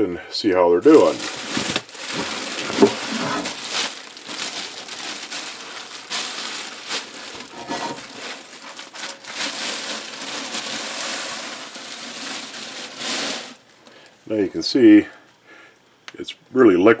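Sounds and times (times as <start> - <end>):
plastic bag crinkling: 0.8 - 14.1.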